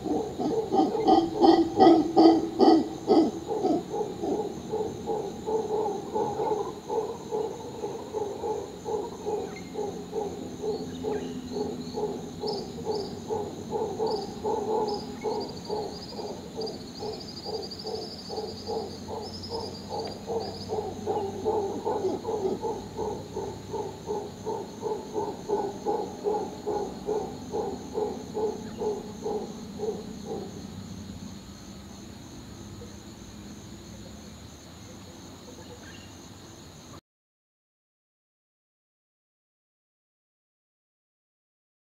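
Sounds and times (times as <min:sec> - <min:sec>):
howler monkey grunting: 0:00.0 - 0:30.7.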